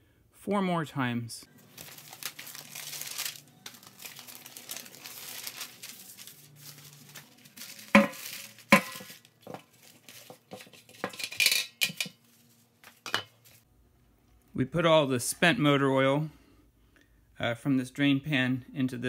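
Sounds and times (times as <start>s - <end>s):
newspaper rustling: 1.5s - 11.1s, 12.2s - 13.6s.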